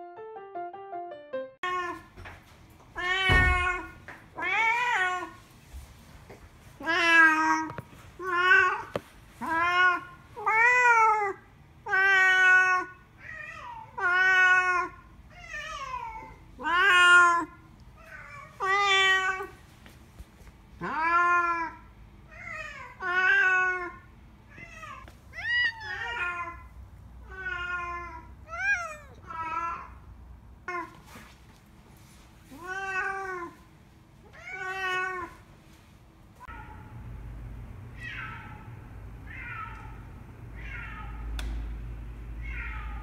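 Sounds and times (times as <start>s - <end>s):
cat meowing: 20.8s - 30.0s.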